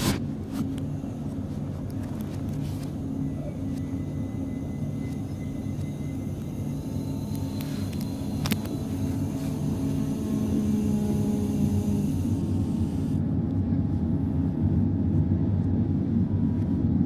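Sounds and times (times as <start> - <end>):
locomotive cab hum: 0.0 - 14.6
thin high steady tone: 2.7 - 13.2.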